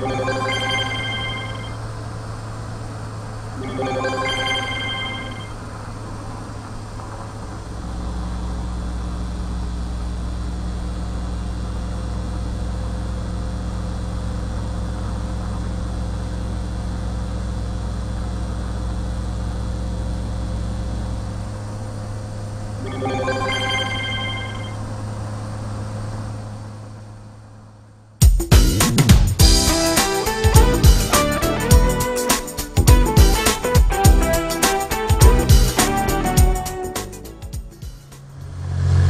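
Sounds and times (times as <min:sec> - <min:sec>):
high electronic beeps and chirps: 0:00.0 - 0:01.8, 0:03.6 - 0:05.6, 0:22.8 - 0:24.8
low electronic hum: 0:00.0 - 0:06.2, 0:07.4 - 0:26.0, 0:29.4 - 0:39.0.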